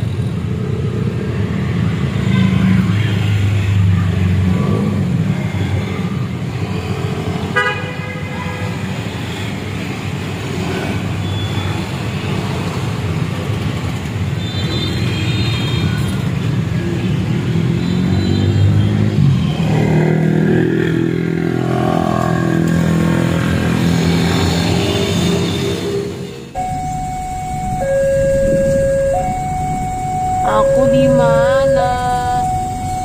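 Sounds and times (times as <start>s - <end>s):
motorcycle engines: 0.0s - 33.0s
vehicle horn toot: 7.6s - 8.6s
cars passing: 15.8s - 33.0s.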